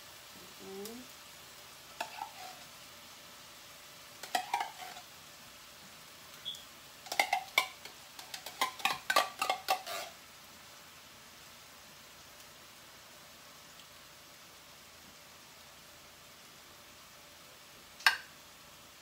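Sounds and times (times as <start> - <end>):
spoon scraping tin can: 4.2 - 5.0, 7.1 - 10.2.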